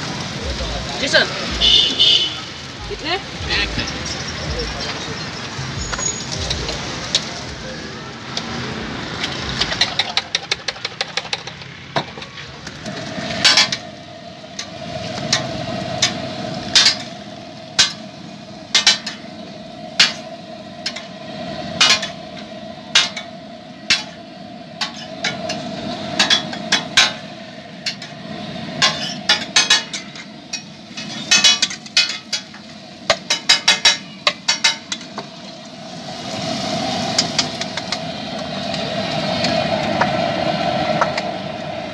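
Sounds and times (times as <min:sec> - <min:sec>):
metal spatula scraping griddle: 0:12.3 - 0:23.3, 0:23.9 - 0:24.2, 0:24.8 - 0:35.3.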